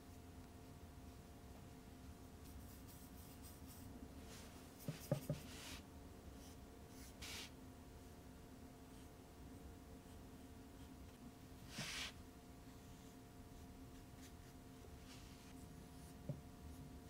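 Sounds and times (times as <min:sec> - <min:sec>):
faint steady hum: 0:00.0 - 0:17.0
paintbrush brushing on paper: 0:02.4 - 0:08.2, 0:10.0 - 0:17.0.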